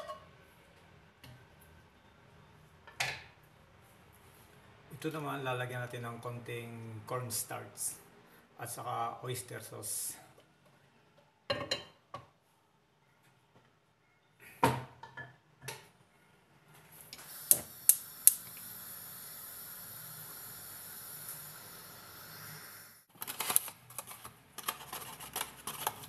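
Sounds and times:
steady hiss: 0:17.0 - 0:23.1.

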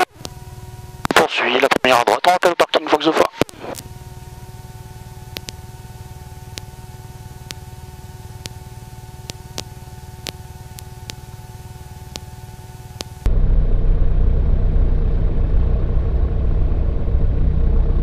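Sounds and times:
intercom electrical hum and hiss: 0:00.0 - 0:13.3
aircraft engine low rumble: 0:00.0 - 0:18.0
steady whining tones: 0:00.0 - 0:18.0.

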